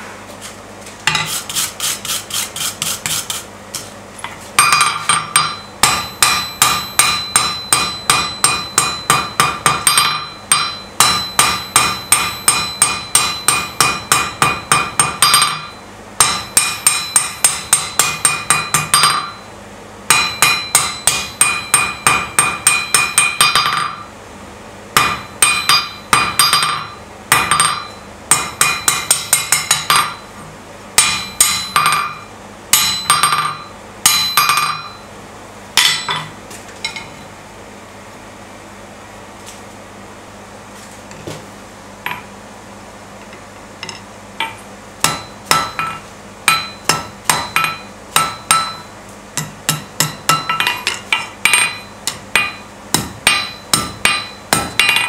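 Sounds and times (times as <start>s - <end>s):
hammer striking steel on anvil: 4.6s - 19.5s, 20.1s - 24.1s, 25.0s - 30.4s, 31.0s - 35.1s, 35.8s - 37.2s, 43.8s - 55.0s.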